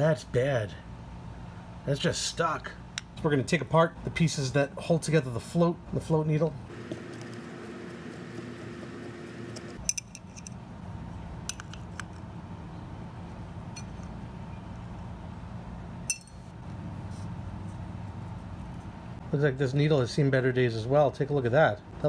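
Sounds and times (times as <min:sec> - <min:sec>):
steady low hum: 0:00.0 - 0:22.0
screwdriver metallic clicks: 0:11.5 - 0:12.2.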